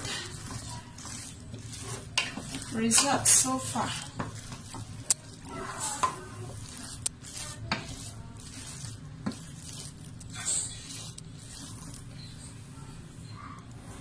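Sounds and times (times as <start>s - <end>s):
steady sizzle: 0.0s - 13.4s
spatula stirring thick filling: 0.0s - 14.0s.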